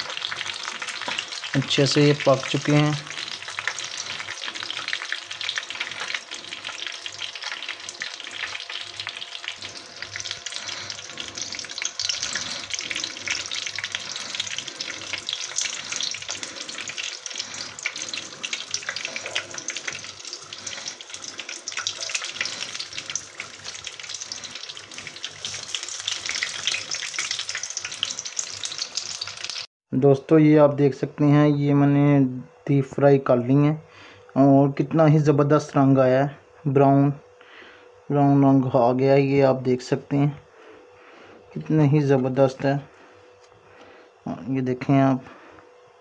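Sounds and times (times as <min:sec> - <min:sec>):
hot oil crackling and bubbling: 0:00.0 - 0:29.7.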